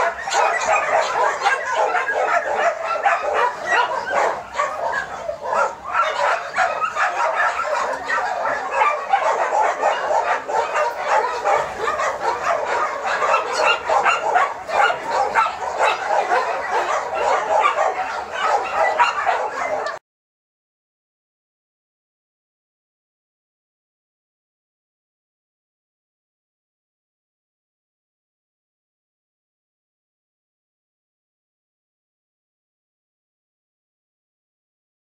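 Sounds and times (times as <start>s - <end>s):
many dogs barking and yelping: 0.0s - 20.0s.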